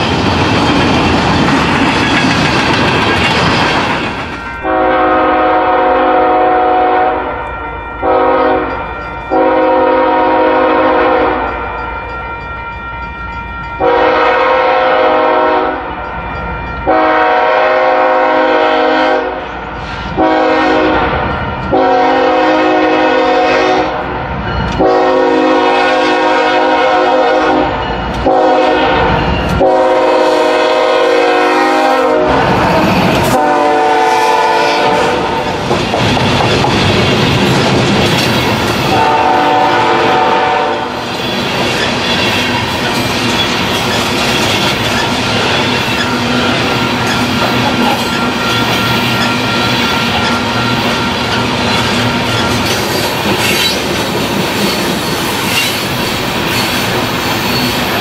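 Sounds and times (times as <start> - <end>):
train rumbling past: 0.0 - 58.0
locomotive air horn blasts: 4.6 - 11.8, 13.8 - 16.0, 16.8 - 24.1, 24.8 - 35.5, 38.8 - 41.0.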